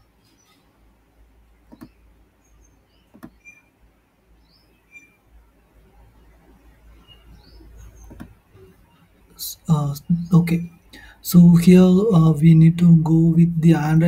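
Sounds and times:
computer mouse clicks: 0:01.7 - 0:02.0, 0:03.1 - 0:03.6, 0:08.0 - 0:08.4.

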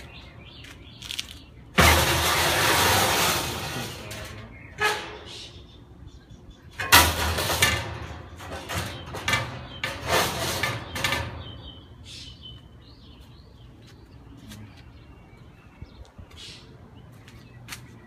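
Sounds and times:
rustling and scraping: 0:00.0 - 0:05.5, 0:06.8 - 0:11.7.

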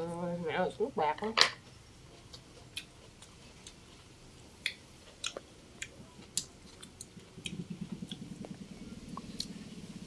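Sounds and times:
person chewing food: 0:02.0 - 0:09.6.

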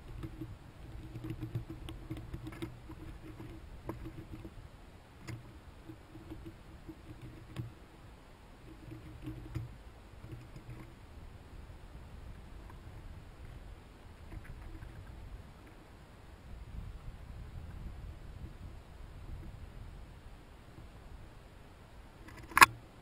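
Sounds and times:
chipmunks gnawing corn kernels: 0:00.0 - 0:04.6, 0:05.2 - 0:07.9, 0:08.5 - 0:11.0, 0:12.3 - 0:15.8.

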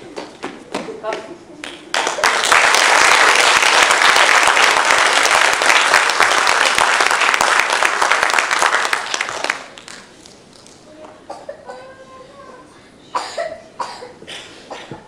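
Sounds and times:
audience applauding: 0:01.6 - 0:10.2.

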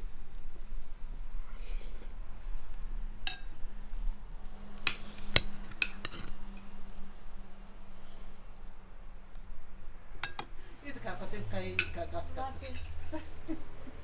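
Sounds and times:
faint steady hum: 0:00.0 - 0:14.0
metal spoon clinking ceramic bowl: 0:10.2 - 0:10.5, 0:11.8 - 0:13.1.

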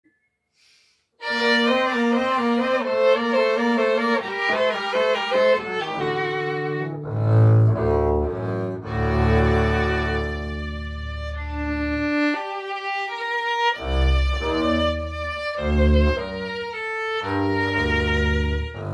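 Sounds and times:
bowed violin melody: 0:01.2 - 0:18.9
double bass low notes: 0:06.0 - 0:12.4, 0:13.8 - 0:18.9.

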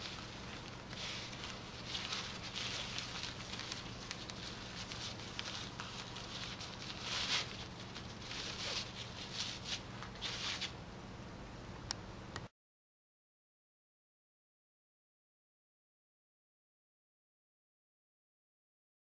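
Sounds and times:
fabric ties rustling: 0:00.0 - 0:10.8
faint steady hum: 0:00.0 - 0:12.5.

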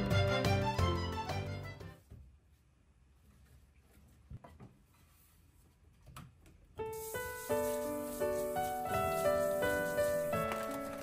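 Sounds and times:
background music: 0:00.0 - 0:02.0, 0:07.3 - 0:11.0.

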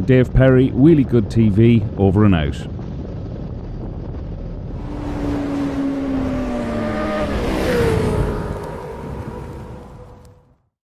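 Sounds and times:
low wind rumble: 0:00.0 - 0:10.7
motorcycle engine running: 0:03.5 - 0:10.0
whoosh: 0:04.6 - 0:10.4.

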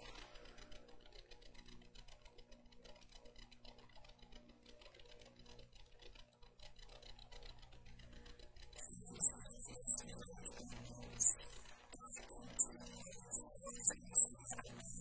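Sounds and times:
low electrical hum: 0:08.8 - 0:15.0
rapid even ticking: 0:08.8 - 0:15.0.

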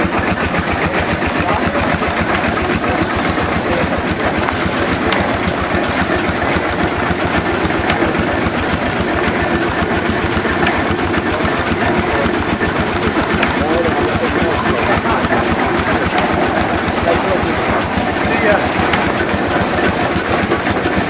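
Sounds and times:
stationary engines running: 0:00.0 - 0:21.0.

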